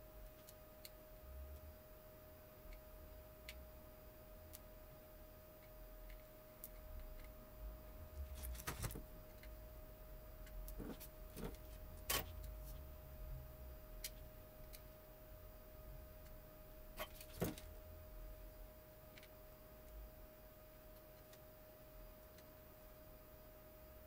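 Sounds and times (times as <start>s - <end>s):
faint steady whine: 0.0s - 24.0s.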